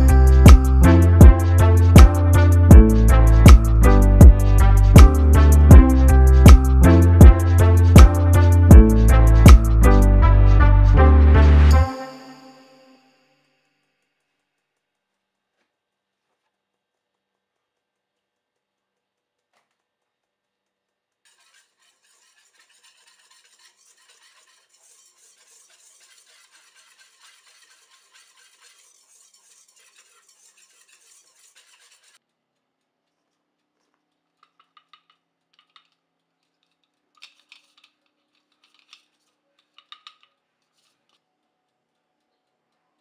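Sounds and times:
powder sifting through a sieve: 21.3s - 32.2s.

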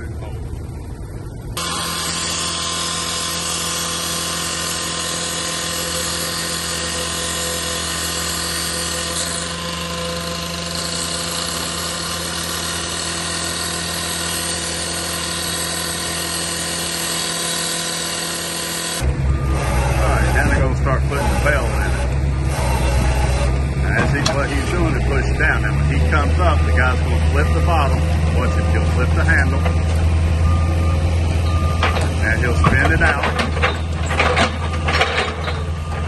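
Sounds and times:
cut-off saw grinding metal: 1.6s - 29.8s.

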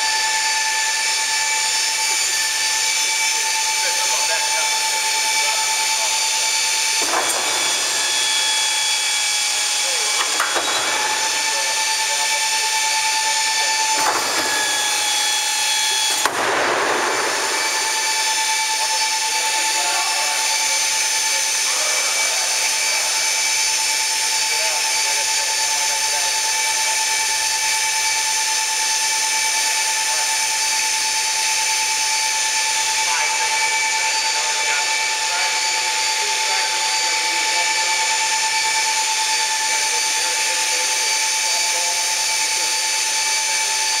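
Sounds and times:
high hydraulic whine: 0.0s - 44.0s.

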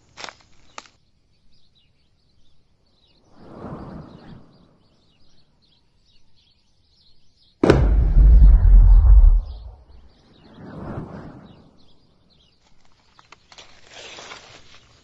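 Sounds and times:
loud bang with low rumble: 7.6s - 10.0s.

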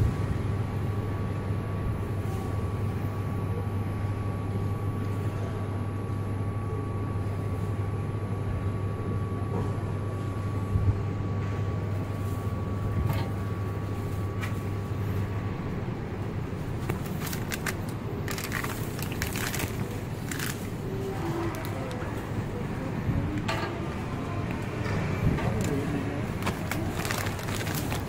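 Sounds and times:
low background hum: 0.0s - 28.0s
plastic wrapping crinkling: 16.7s - 22.0s, 26.4s - 28.0s.

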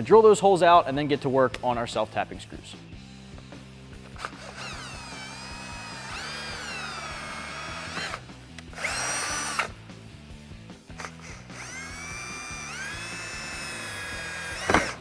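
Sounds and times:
power drill drilling: 4.0s - 9.8s, 11.0s - 15.0s.

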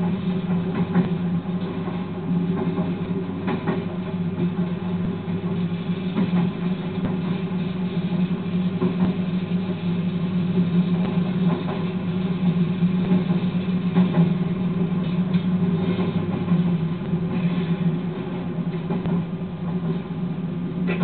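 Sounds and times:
locomotive engine running: 0.0s - 21.0s.

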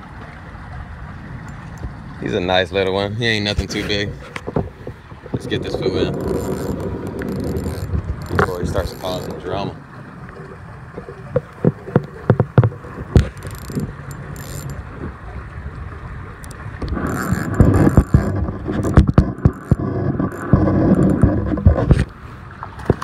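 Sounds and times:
fishing reel cranking: 5.7s - 9.4s, 13.2s - 14.8s, 16.4s - 21.6s
fishing rod handling knocks: 6.1s - 9.4s.

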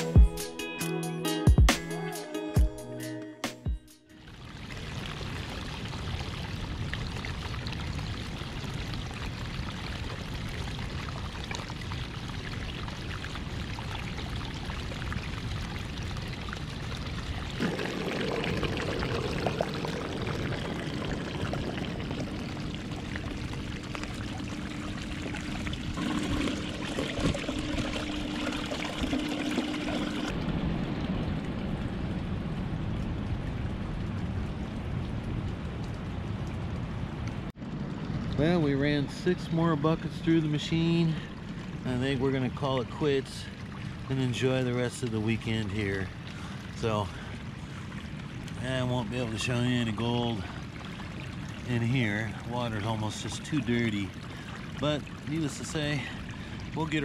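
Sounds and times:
water pouring and splashing: 4.2s - 57.0s
steady low hum: 17.3s - 34.6s.

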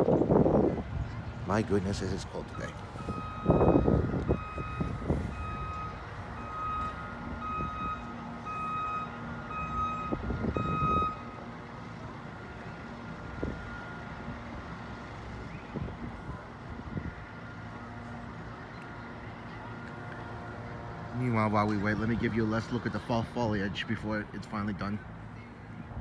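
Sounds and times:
electronic warning beeps: 2.4s - 11.4s.

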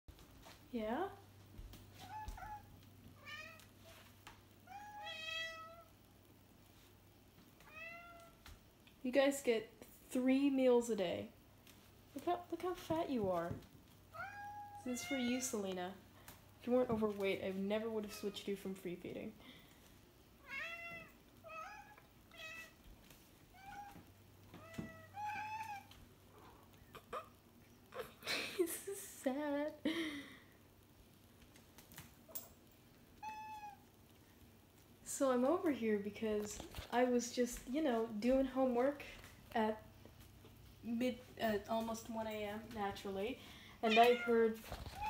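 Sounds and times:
cats meowing: 14.1s - 15.5s, 20.4s - 22.8s, 23.5s - 28.1s, 33.2s - 33.9s, 43.8s - 45.0s.

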